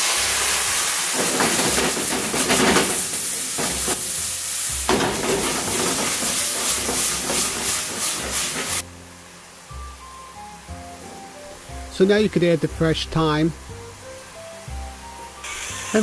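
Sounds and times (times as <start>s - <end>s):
wine sizzling in a hot pan: 0.0s - 16.0s
metal pan knocking on burner grate: 1.2s - 4.2s, 4.9s - 8.8s.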